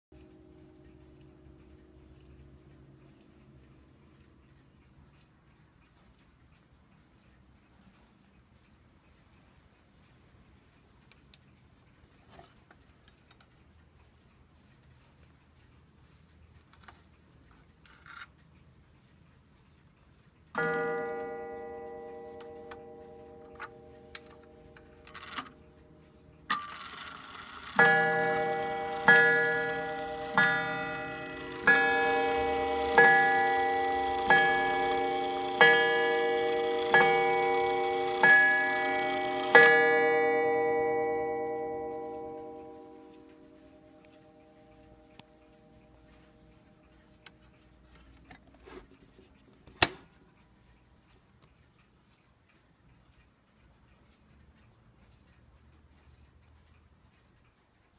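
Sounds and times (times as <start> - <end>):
clock hands clicking: 0.1 - 57.9
clock ticking: 0.1 - 57.9
mantel clock striking on gong: 20.6 - 25.6, 26.5 - 46.2.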